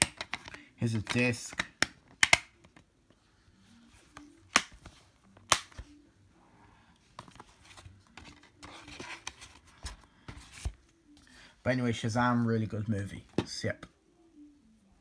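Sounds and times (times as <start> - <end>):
plastic case handling noise: 0.0 - 2.9, 7.1 - 10.9
plastic case snapping shut: 1.5 - 2.6.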